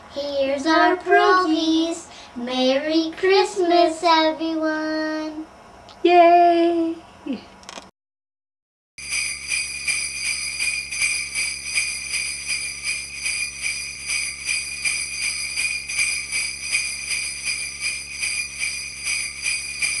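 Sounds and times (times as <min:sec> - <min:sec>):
sleigh bells jingling: 0:09.0 - 0:20.0.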